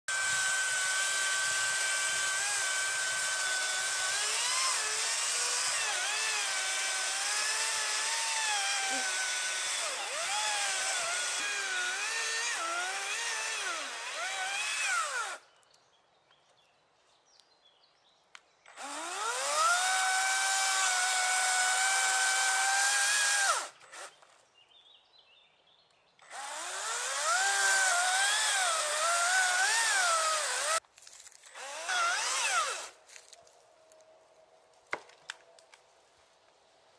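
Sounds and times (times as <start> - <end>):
electric chainsaw whining: 0.1 - 15.4, 18.7 - 24.2, 26.2 - 30.8, 31.4 - 33.0.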